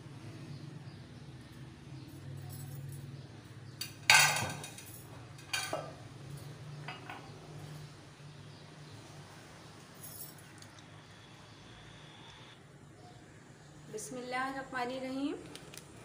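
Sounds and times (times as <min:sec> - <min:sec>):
metal utensils clinking on pot: 0:03.8 - 0:06.0.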